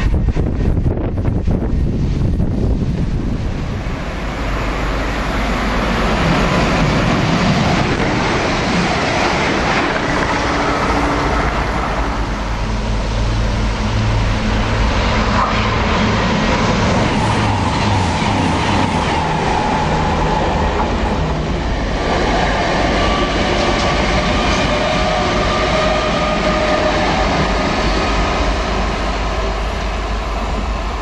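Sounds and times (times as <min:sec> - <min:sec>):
low hum of approaching train: 0:00.0 - 0:31.0
trains passing at speed: 0:00.0 - 0:31.0.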